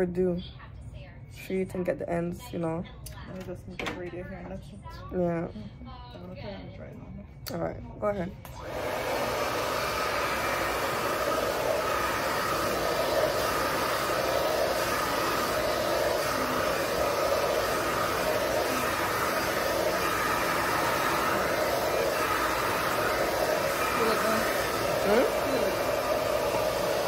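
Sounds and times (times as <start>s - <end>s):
hair dryer blowing: 8.4s - 27.0s.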